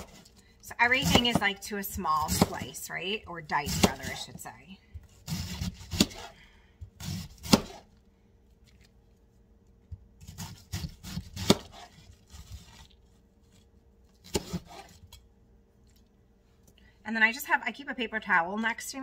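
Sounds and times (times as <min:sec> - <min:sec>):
knife slicing cabbage: 0:00.0 - 0:01.6, 0:02.2 - 0:02.8, 0:03.6 - 0:04.4, 0:05.0 - 0:08.0, 0:10.2 - 0:15.2.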